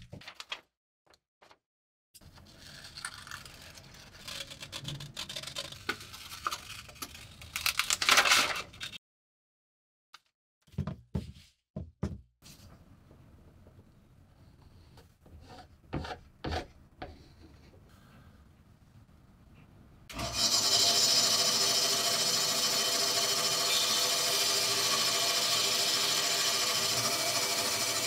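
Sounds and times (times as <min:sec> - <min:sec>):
scissors cutting paper: 0:02.3 - 0:09.0.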